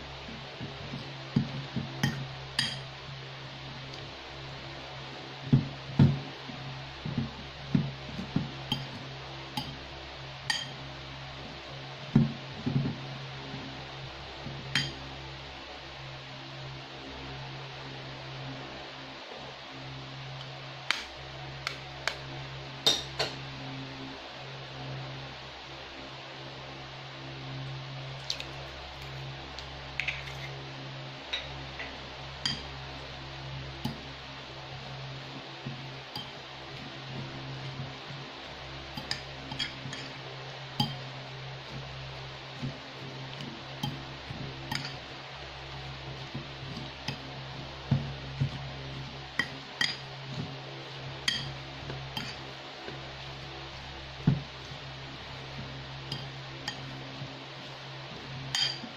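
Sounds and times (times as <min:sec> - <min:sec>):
steady low hum: 0:00.0 - 0:58.9
fork mixing food in a bowl: 0:35.3 - 0:58.9.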